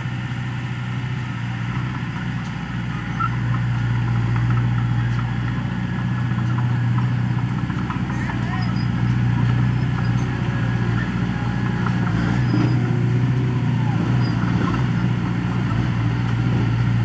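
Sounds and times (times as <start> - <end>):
bulldozer diesel engine running: 0.0 - 17.0.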